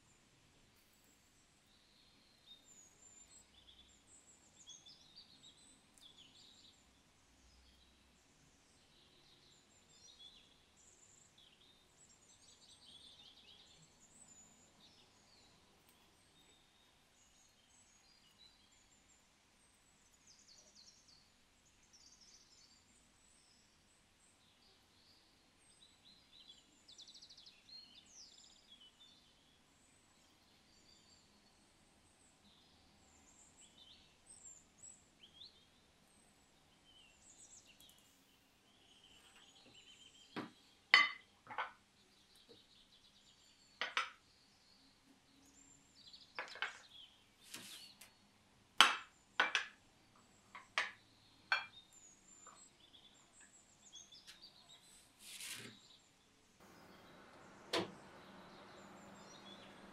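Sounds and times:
faint bird chirping: 0:00.0 - 0:59.9
enamel mugs clinking on glass: 0:41.0 - 0:41.7, 0:51.5 - 0:51.7.

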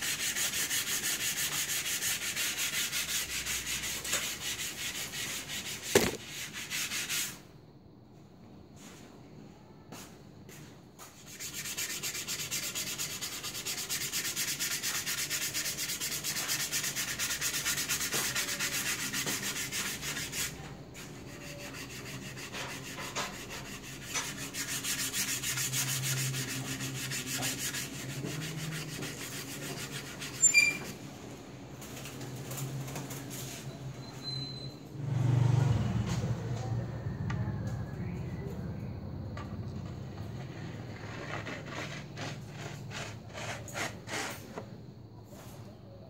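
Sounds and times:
sandpaper rubbing on wood: 0:00.0 - 0:07.4, 0:11.2 - 0:31.0, 0:40.9 - 0:44.6.

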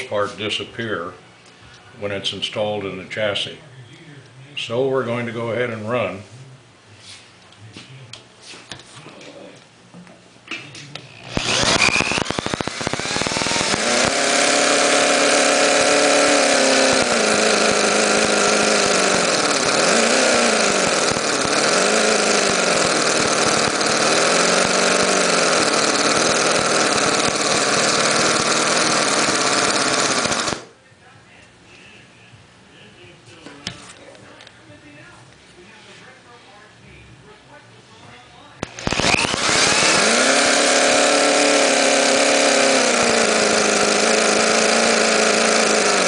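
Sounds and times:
electric drill starting engine: 0:11.1 - 0:30.7, 0:38.6 - 0:46.0
model engine running high and fast: 0:11.2 - 0:30.7, 0:38.7 - 0:46.0.

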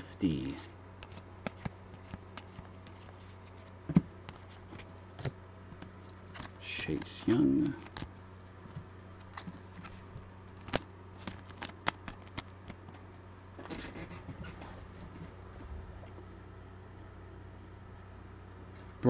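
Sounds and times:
cards rustling: 0:00.0 - 0:12.9
cards clicking and tapping: 0:01.0 - 0:03.2, 0:03.8 - 0:12.9.

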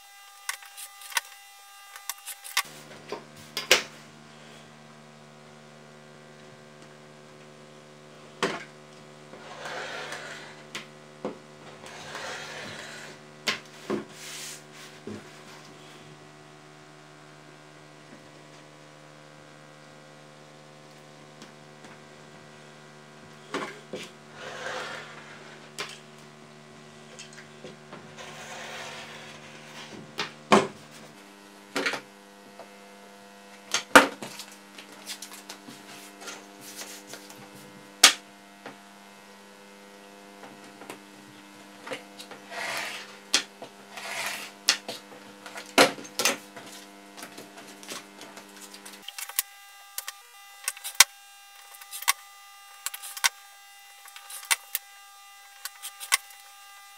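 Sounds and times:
electrical hum: 0:00.0 - 0:56.9
blade cutting card along ruler: 0:42.5 - 0:43.2, 0:43.9 - 0:45.0, 0:48.7 - 0:52.2, 0:52.8 - 0:53.4, 0:54.0 - 0:54.9, 0:55.5 - 0:56.5.

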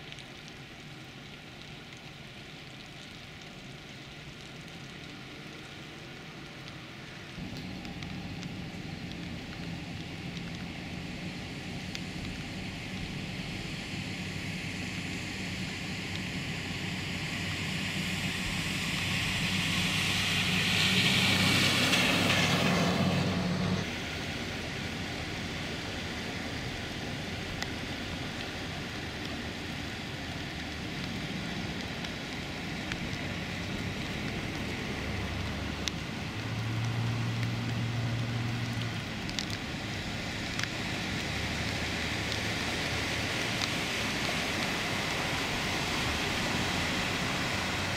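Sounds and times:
rain and water wash: 0:00.0 - 0:47.9
water spraying off tyres: 0:00.0 - 0:47.9
vehicle engine humming: 0:07.2 - 0:30.4.

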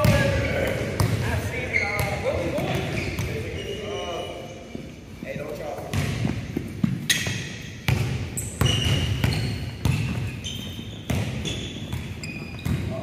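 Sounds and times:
sneakers squeaking: 0:00.0 - 0:13.0
basketball bouncing on wooden floor: 0:05.9 - 0:13.0.

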